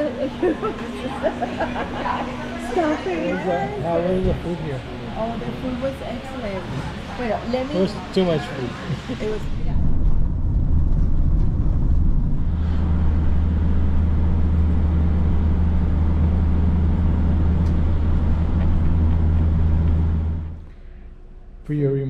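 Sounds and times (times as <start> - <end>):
road vehicle engine drone: 0.0 - 21.7.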